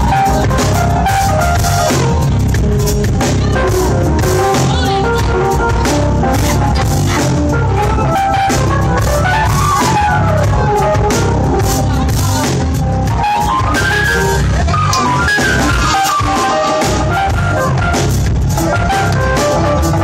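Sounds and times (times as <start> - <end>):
bass: 0.0 - 20.0
drum kit: 0.0 - 20.0
electric keyboard: 0.0 - 20.0.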